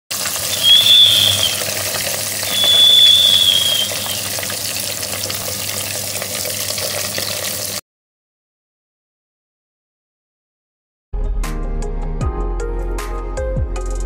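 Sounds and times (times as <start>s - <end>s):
sizzling hiss: 0.2s - 7.8s
high whistling tones: 0.4s - 1.8s, 2.4s - 4.3s.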